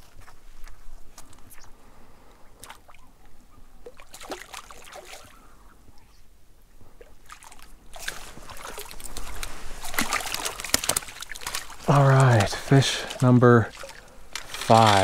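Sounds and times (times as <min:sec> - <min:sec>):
fish splashing in water: 0:03.8 - 0:05.4, 0:07.2 - 0:15.0.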